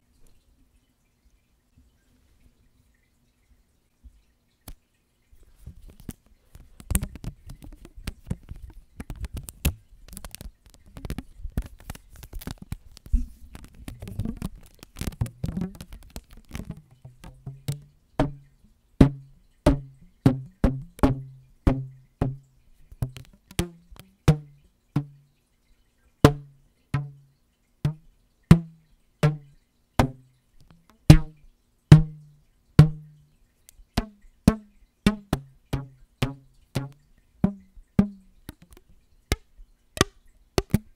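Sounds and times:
rubber bands handled on microphone: 5.5s - 18.3s, 21.7s - 24.5s, 34.0s - 40.9s
rubber bands plucked twanging: 6.8s - 25.2s, 26.2s - 27.2s, 27.8s - 33.3s, 34.0s - 40.9s.

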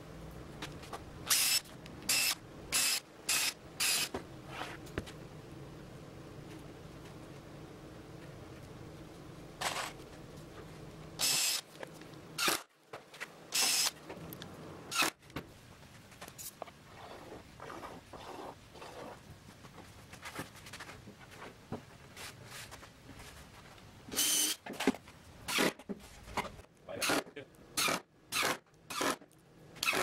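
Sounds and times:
cordless drill driving screws: 1.3s - 4.1s, 11.2s - 11.6s, 13.5s - 14.0s, 24.2s - 24.6s, 29.8s - 30.0s.

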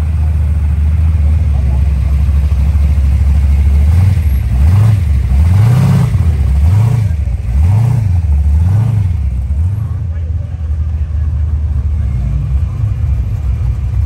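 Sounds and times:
car engine idling: 0.0s - 14.0s
engine revving in throttle blips: 3.6s - 10.0s.

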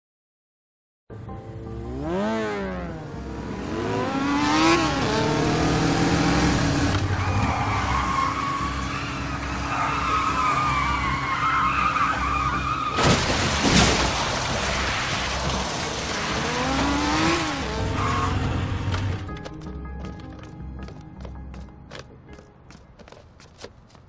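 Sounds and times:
motorcycle engine revving: 1.5s - 10.0s, 15.6s - 19.3s.

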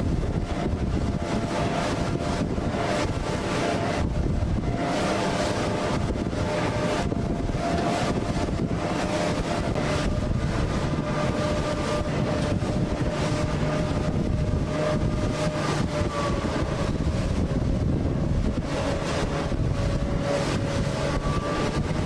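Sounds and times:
rushing water: 0.0s - 22.0s
wind buffeting microphone: 0.0s - 22.0s.

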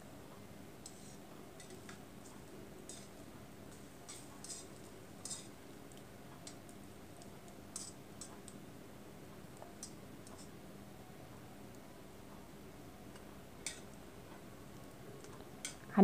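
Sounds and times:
oil sizzling: 0.7s - 8.6s, 13.2s - 15.9s
metal tongs clicking against wok: 2.8s - 8.6s, 13.6s - 14.0s.

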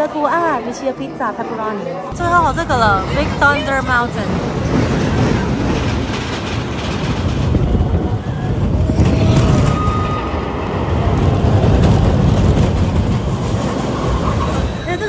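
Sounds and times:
roller coaster rumbling on track: 2.1s - 15.0s.

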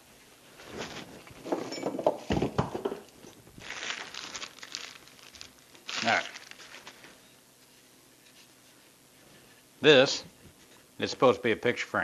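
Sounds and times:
rustling and scraping: 0.2s - 11.0s
items clattering: 0.6s - 7.2s.

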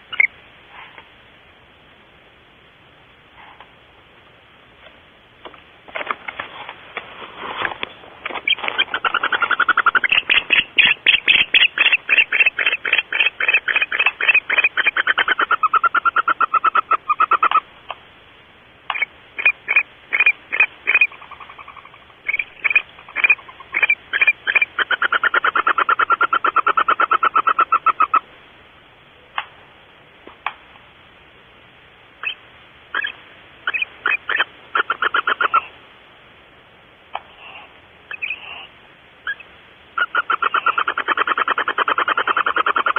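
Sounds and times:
barn owl chittering calls: 0.0s - 0.4s, 8.3s - 18.0s, 18.9s - 28.4s, 32.2s - 35.8s, 37.1s - 42.9s.

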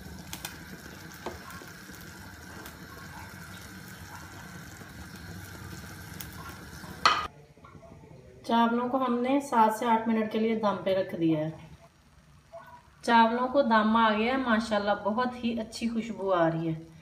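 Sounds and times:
pot steaming hiss: 0.0s - 7.3s.

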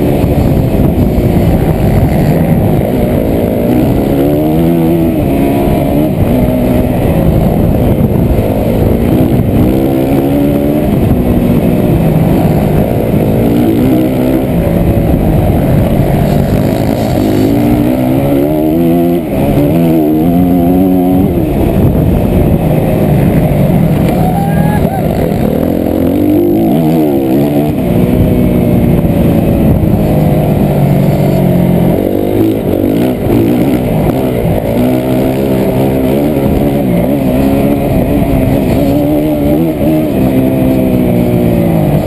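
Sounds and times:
motocross bike engine revving: 0.0s - 42.0s
wind rush on microphone: 0.0s - 42.0s.

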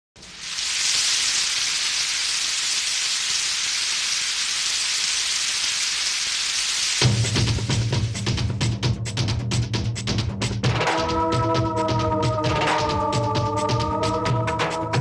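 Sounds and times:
steady hiss: 0.2s - 8.4s.

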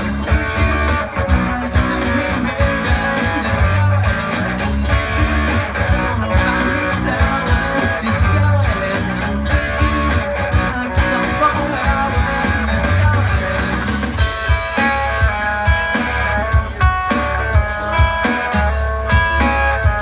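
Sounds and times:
drum kit beat: 0.0s - 20.0s
keyboard: 0.0s - 20.0s
strummed acoustic guitar: 0.0s - 20.0s.

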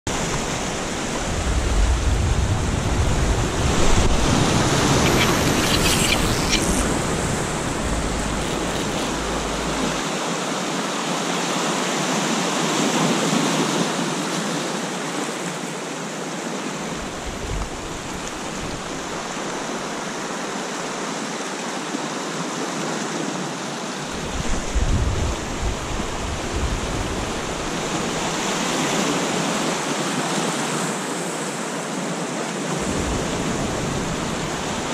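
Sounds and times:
wind buffeting microphone: 1.0s - 10.0s.

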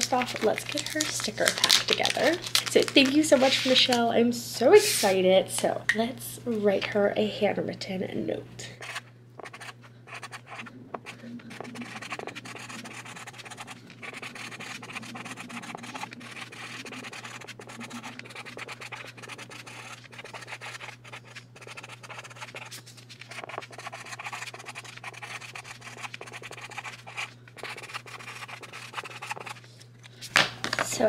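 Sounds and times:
marker scratching on paper: 8.8s - 29.6s.

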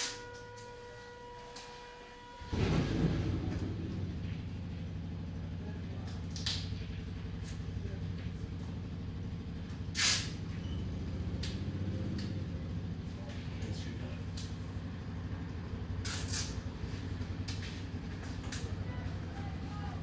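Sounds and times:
vehicle engine running: 0.0s - 20.0s
short hisses: 10.0s - 10.4s.

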